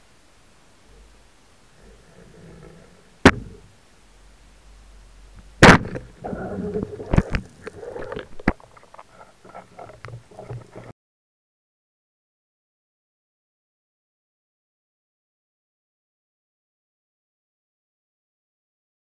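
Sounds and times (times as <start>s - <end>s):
rough water noise: 0.0s - 10.9s.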